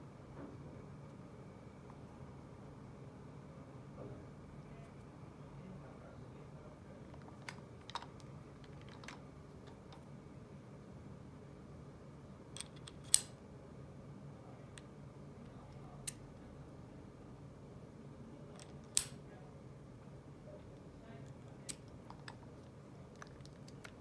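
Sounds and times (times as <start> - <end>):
metallic screwdriver bit clicks: 12.6 - 13.3.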